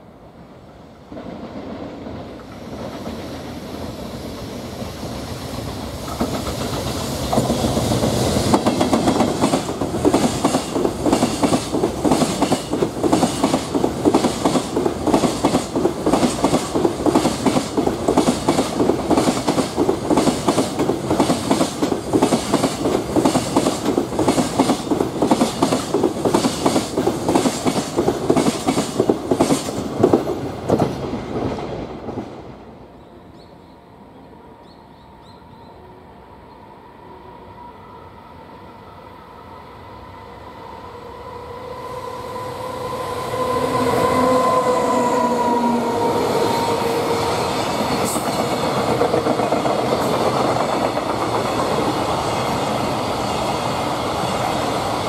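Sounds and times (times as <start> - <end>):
freight train passing: 0.0 - 55.0.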